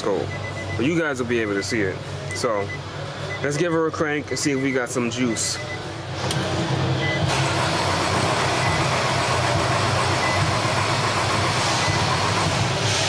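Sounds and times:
starter motor cranking engine: 0:06.2 - 0:12.7.

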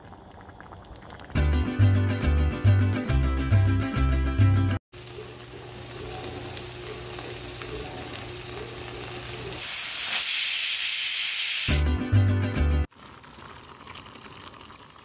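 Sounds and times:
prawns sizzling in a pan: 0:04.9 - 0:11.8
pressure cooker steam hiss: 0:05.0 - 0:11.8.

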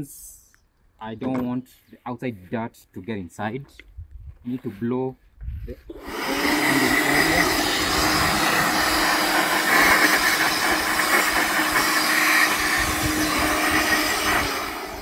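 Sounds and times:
cordless air blower running: 0:05.9 - 0:15.0.

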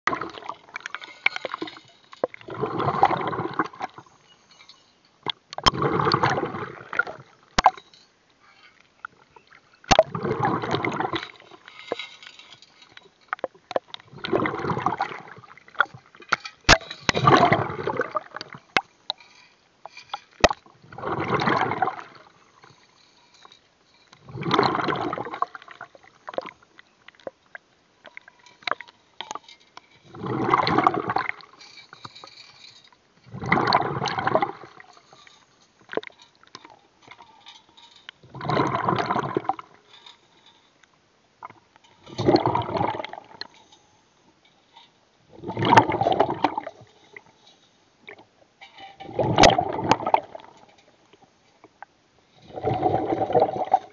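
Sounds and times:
water gurgling underwater: 0:00.0 - 0:01.6, 0:02.2 - 0:04.1, 0:05.2 - 0:07.7, 0:09.8 - 0:11.6, 0:13.4 - 0:18.8, 0:20.4 - 0:22.4, 0:24.2 - 0:27.7, 0:30.1 - 0:31.6, 0:33.2 - 0:34.9, 0:38.2 - 0:39.8, 0:41.4 - 0:43.5, 0:45.3 - 0:46.9, 0:49.0 - 0:50.7, 0:52.4 - 0:53.9.

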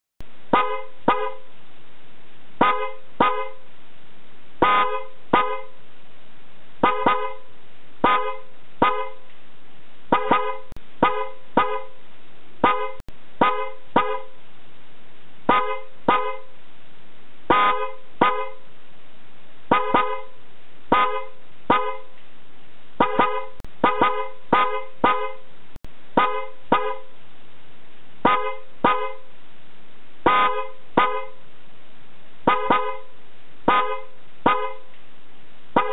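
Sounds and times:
steady hiss: 0:00.2 - 0:04.6, 0:25.4 - 0:35.8
electric car horns honking: 0:00.5 - 0:01.5, 0:02.6 - 0:03.7, 0:04.6 - 0:05.8, 0:06.8 - 0:09.3, 0:10.1 - 0:12.0, 0:12.6 - 0:14.4, 0:15.5 - 0:16.6, 0:17.5 - 0:18.7, 0:19.7 - 0:22.1, 0:23.0 - 0:25.5, 0:26.2 - 0:27.1, 0:28.2 - 0:29.3, 0:30.3 - 0:31.4, 0:32.5 - 0:33.1, 0:33.7 - 0:34.9.

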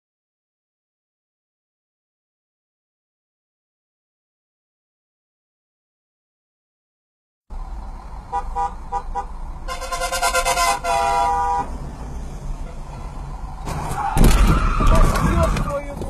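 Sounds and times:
car horns honking: 0:08.3 - 0:11.9, 0:12.6 - 0:15.5.

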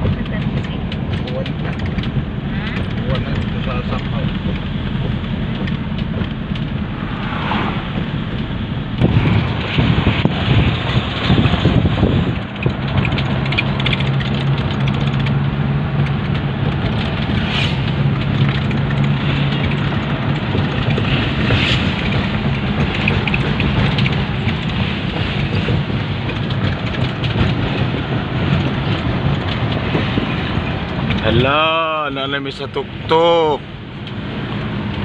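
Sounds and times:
road noise rushing: 0:00.0 - 0:35.0
rough rumbling: 0:00.0 - 0:35.0
vehicle engine hum: 0:00.0 - 0:35.0.

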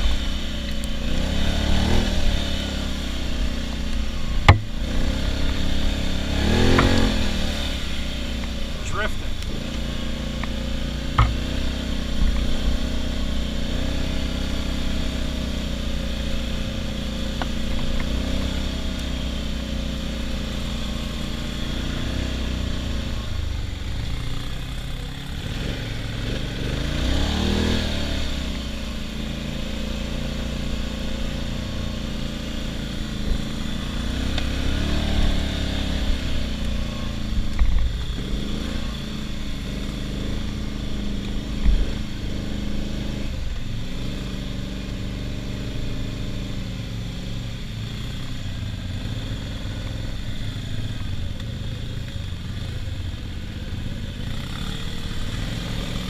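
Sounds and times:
atv engine running: 0:00.0 - 0:56.0
sharp knocks: 0:04.4 - 0:04.7, 0:11.2 - 0:11.4.

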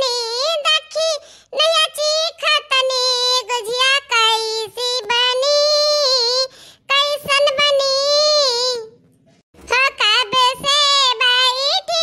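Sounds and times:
high-pitched cartoon voice singing: 0:00.0 - 0:08.9, 0:09.7 - 0:12.0.

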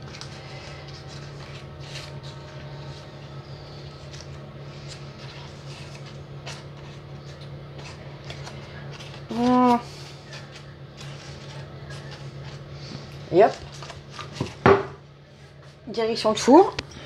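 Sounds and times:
baking paper and pastry crinkling: 0:00.0 - 0:14.7
steady low hum: 0:00.0 - 0:17.0.

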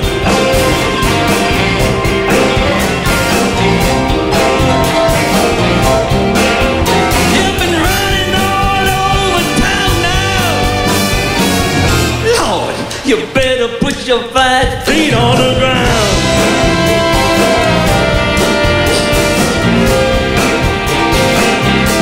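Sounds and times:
horn section: 0:00.0 - 0:12.9, 0:15.1 - 0:22.0
soul band playing: 0:00.0 - 0:13.6, 0:14.7 - 0:22.0
person singing: 0:06.8 - 0:11.0, 0:11.8 - 0:20.5.

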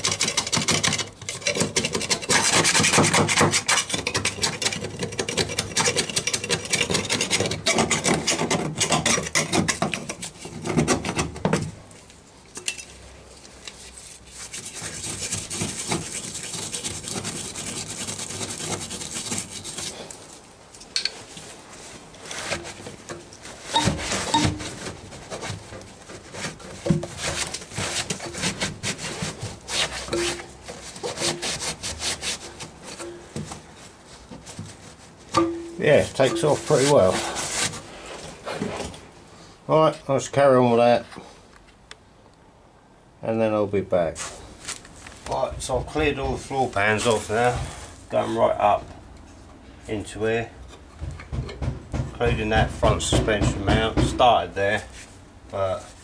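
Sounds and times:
scraper scraping metal floor: 0:13.8 - 0:20.0, 0:23.5 - 0:33.4.

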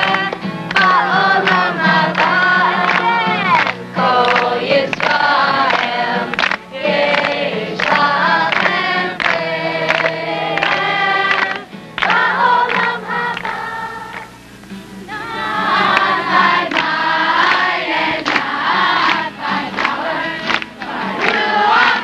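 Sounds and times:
group of voices singing: 0:00.0 - 0:14.4, 0:15.1 - 0:22.0
steady low hum: 0:00.0 - 0:22.0.

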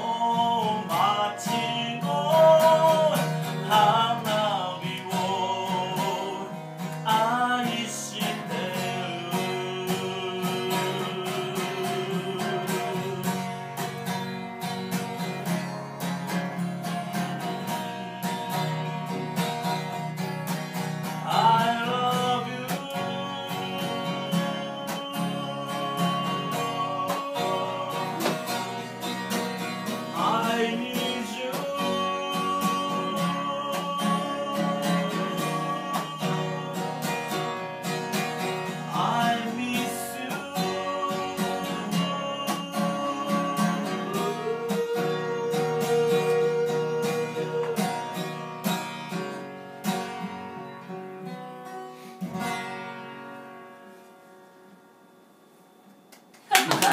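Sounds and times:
man singing slow song: 0:00.0 - 0:14.4, 0:17.1 - 0:19.6, 0:21.0 - 0:48.6
acoustic guitar strummed: 0:00.0 - 0:56.9.

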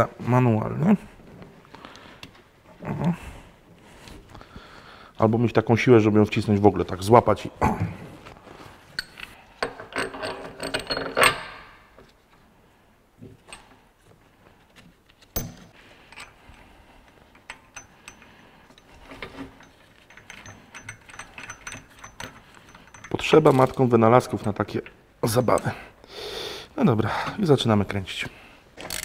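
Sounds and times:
metal parts clinking: 0:09.0 - 0:11.6, 0:15.3 - 0:25.7, 0:28.8 - 0:29.0.

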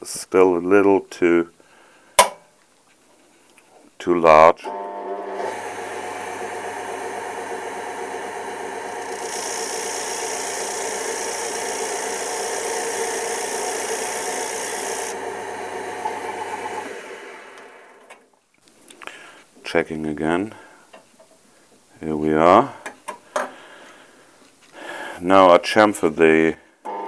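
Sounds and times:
lathe motor running: 0:04.7 - 0:18.0.

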